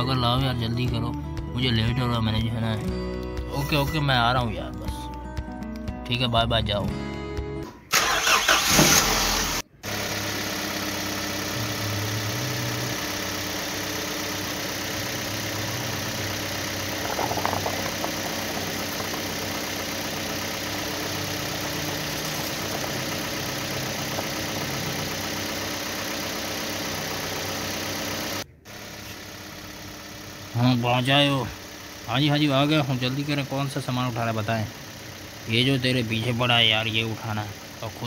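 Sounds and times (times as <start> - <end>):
truck engine running: 7.9 - 38.0.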